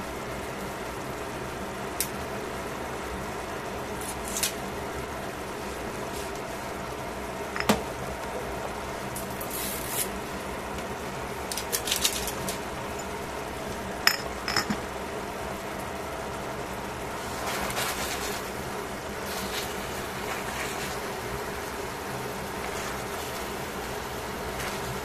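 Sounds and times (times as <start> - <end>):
sauce simmering hiss: 15.0 - 25.0.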